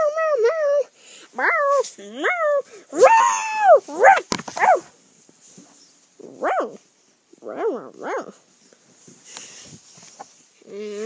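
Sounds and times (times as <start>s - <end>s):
small dog yipping: 1.4s - 4.9s, 6.2s - 6.8s.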